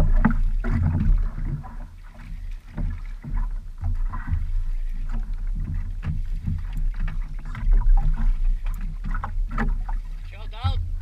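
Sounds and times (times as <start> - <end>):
water lapping against wooden boat: 0.0 - 11.0
steady low rumble: 3.0 - 11.0
knocks on boat: 9.0 - 11.0.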